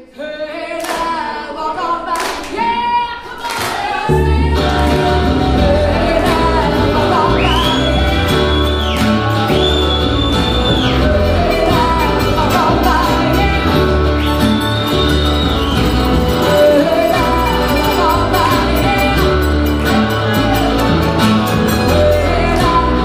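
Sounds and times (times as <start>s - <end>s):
person singing: 0.0s - 15.1s, 16.2s - 23.0s
bluegrass band playing: 4.1s - 23.0s
upright bass line: 4.1s - 23.0s.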